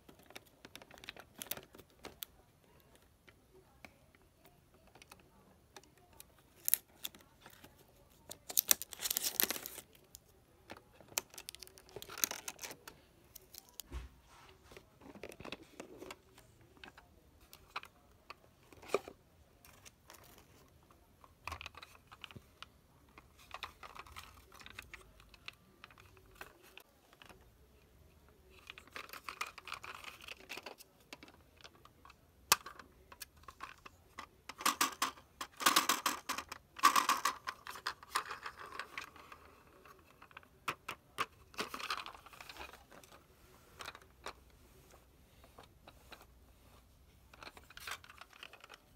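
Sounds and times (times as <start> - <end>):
plastic scraping and crinkling: 5.8 - 13.9, 32.6 - 48.9.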